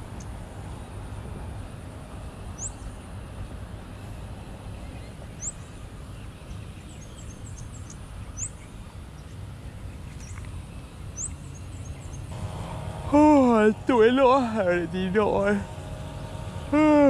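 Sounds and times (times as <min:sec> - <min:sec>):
soft bird chirps: 0:04.8 - 0:12.3.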